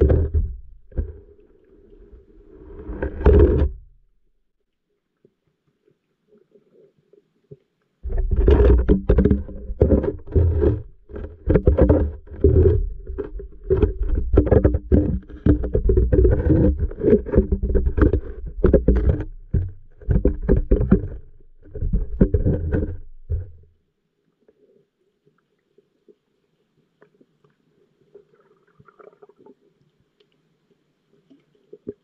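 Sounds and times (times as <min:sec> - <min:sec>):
underwater gurgling and knocking: 0:00.0 - 0:01.4, 0:08.0 - 0:23.7.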